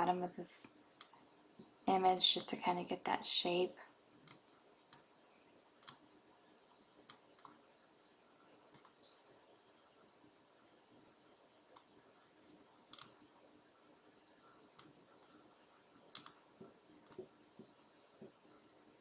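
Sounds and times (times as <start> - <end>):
faint mouse clicks: 5.8 - 6.0, 7.0 - 7.6, 8.7 - 9.2.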